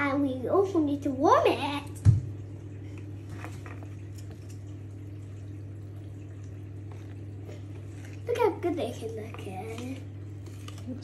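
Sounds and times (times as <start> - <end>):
steady low hum: 0.0 - 11.0
batter stirred in plastic bowl: 6.9 - 11.0.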